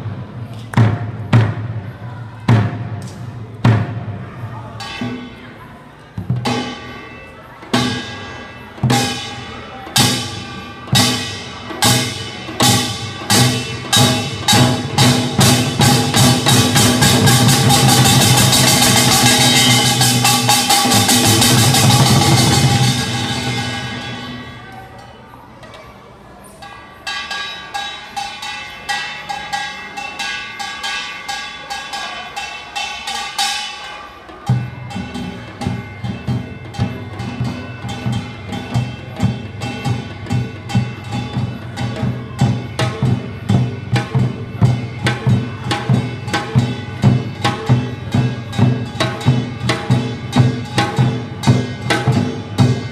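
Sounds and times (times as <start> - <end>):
drums striking in unison: 0.0 - 5.5, 6.1 - 7.0, 7.7 - 24.6, 34.4 - 52.9.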